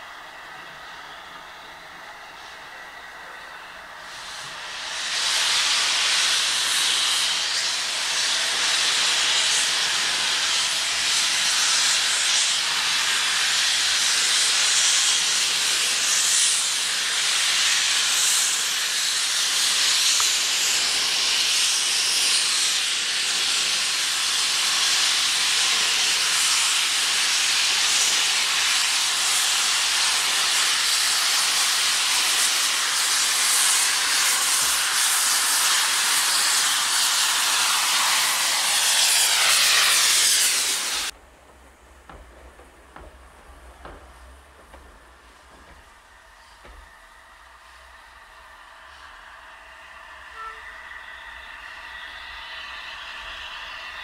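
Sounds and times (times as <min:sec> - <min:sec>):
loud hiss of escaping steam: 0:00.0 - 0:54.0.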